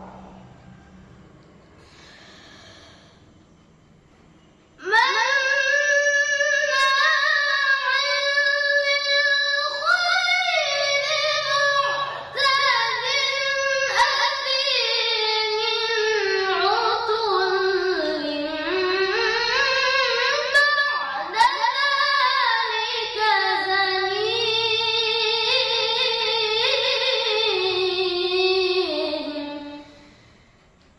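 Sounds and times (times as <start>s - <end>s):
boy reciting melodically: 4.8s - 30.2s.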